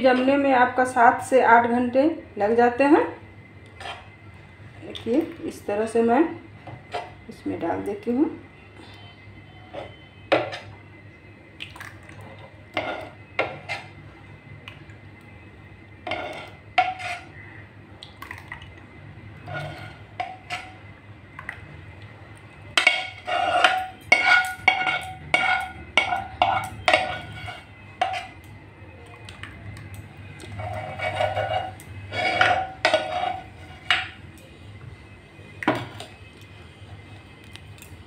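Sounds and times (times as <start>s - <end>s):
ladle scraping and clinking pan: 12.7s - 14.0s, 16.0s - 17.4s, 19.4s - 20.8s, 22.8s - 28.4s, 30.4s - 34.2s.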